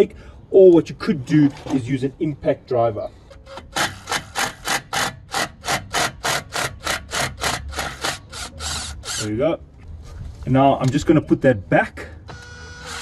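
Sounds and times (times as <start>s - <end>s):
impact driver hammering: 3.5s - 9.2s.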